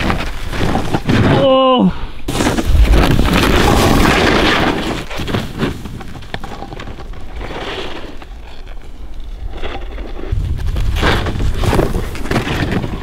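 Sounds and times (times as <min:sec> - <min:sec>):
small snow crunches: 0:00.0 - 0:13.0
snowboard scraping over snow: 0:02.3 - 0:13.0
wind rumbling on microphone: 0:09.2 - 0:13.0.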